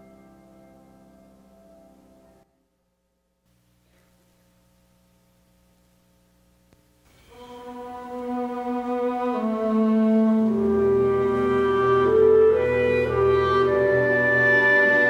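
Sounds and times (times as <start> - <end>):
slow instrumental processional music: 0.0 - 2.6, 7.1 - 15.0.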